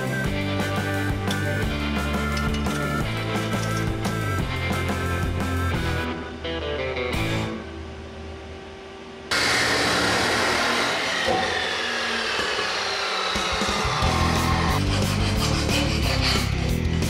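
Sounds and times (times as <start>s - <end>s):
chop saw cutting steel tubing: 9.3s - 17.0s.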